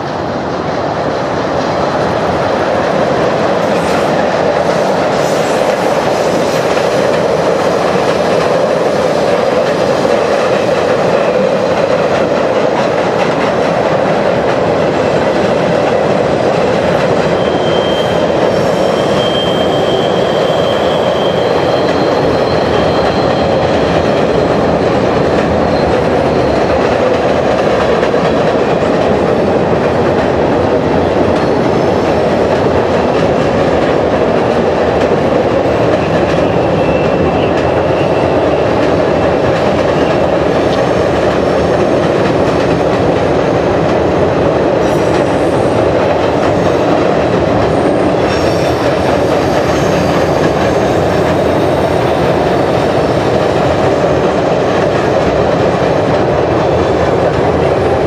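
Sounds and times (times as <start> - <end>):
train rumble on steel bridge: 0.0 - 58.0
wheels clickety-clack on rails: 0.0 - 58.0
faint high wheel squeals: 17.4 - 24.0.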